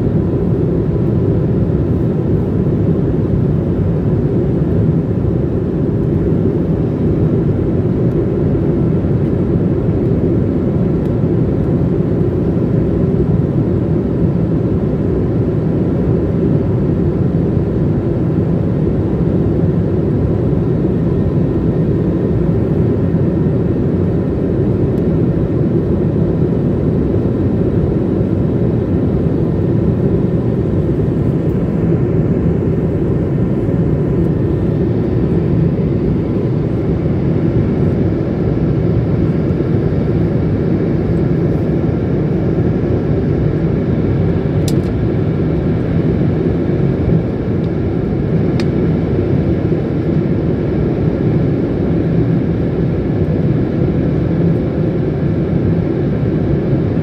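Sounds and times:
jet engine and airflow rush: 0:00.0 - 0:57.0.

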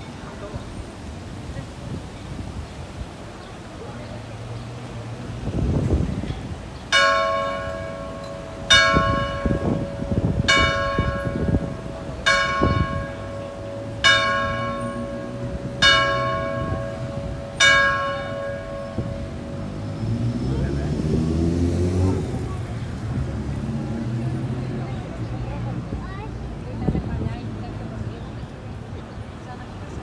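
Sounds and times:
church bell tolling: 0:06.9 - 0:19.8.

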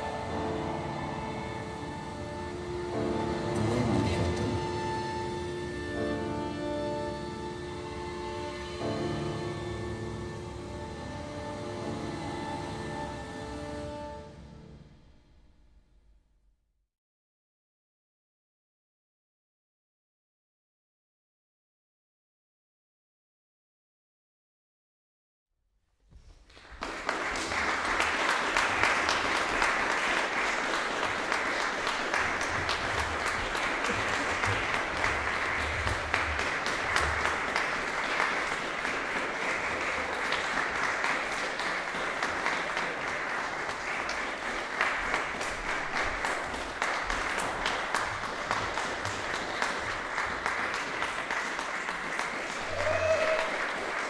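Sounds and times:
audience applauding: 0:00.0 - 0:06.1, 0:26.4 - 0:54.0.

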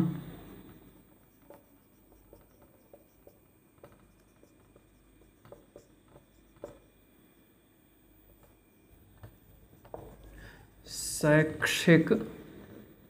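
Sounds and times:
marker pen squeaking on whiteboard: 0:01.0 - 0:07.0.

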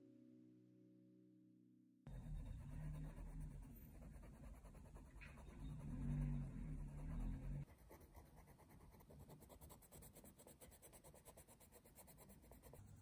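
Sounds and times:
low hum: 0:02.1 - 0:07.6
pencil scratching on paper: 0:02.1 - 0:13.0.

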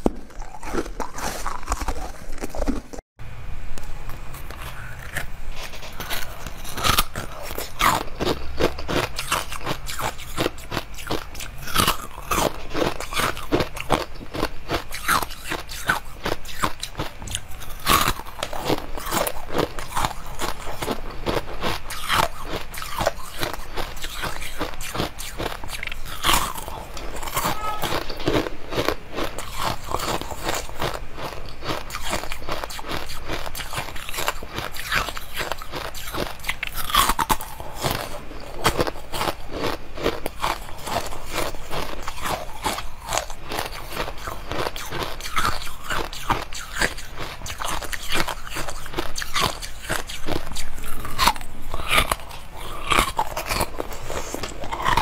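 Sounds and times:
chewing frozen bars crunching: 0:00.0 - 0:03.0, 0:04.1 - 0:55.0.

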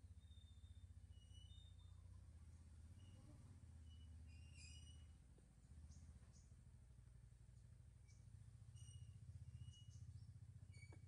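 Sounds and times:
faint high-pitched chirp: 0:00.0 - 0:05.2, 0:08.0 - 0:11.0
low background hum: 0:00.0 - 0:11.0.

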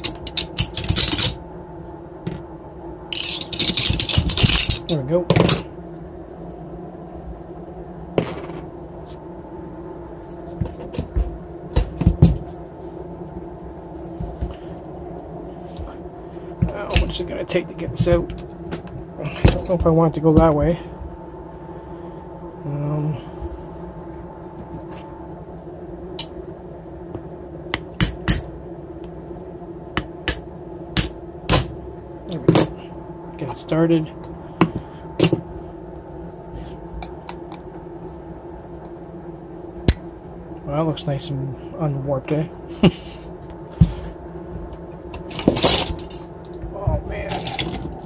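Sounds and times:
metal parts knocking and clinking: 0:00.0 - 0:01.4, 0:03.1 - 0:05.6, 0:45.2 - 0:46.3, 0:47.3 - 0:48.0
steady low hum: 0:00.0 - 0:48.0.

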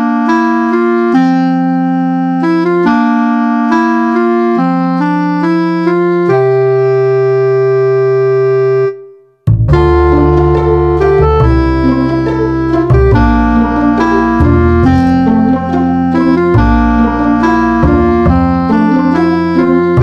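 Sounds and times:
keyboard music: 0:00.0 - 0:20.0.

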